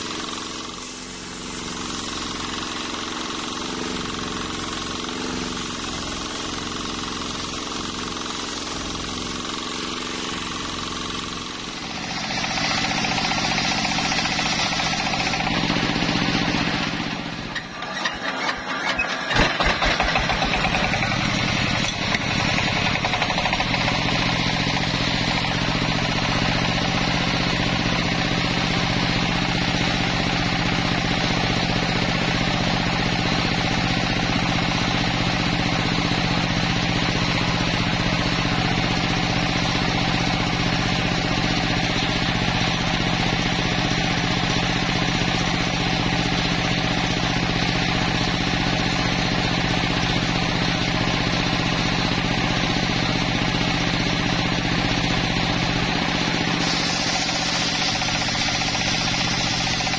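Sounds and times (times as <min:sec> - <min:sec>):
circular saw cutting wood: 0:00.0 - 0:27.2, 0:54.6 - 0:59.9.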